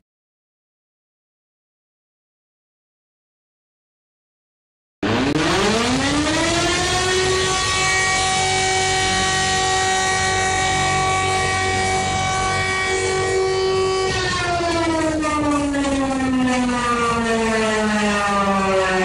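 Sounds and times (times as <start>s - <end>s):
emergency siren winding up: 5.0s - 19.0s.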